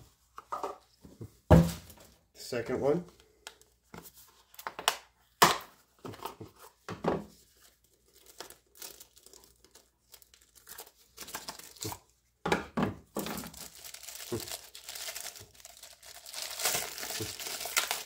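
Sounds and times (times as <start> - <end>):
plastic packaging crinkling and tearing: 7.5 - 12.1, 13.2 - 18.0.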